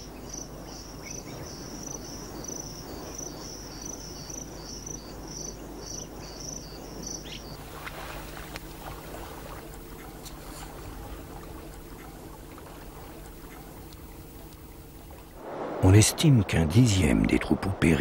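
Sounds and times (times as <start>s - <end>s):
insect chirping: 0.0s - 15.7s
running water hiss: 0.0s - 18.0s
low background rumble: 0.1s - 18.0s
water splashes: 7.5s - 18.0s.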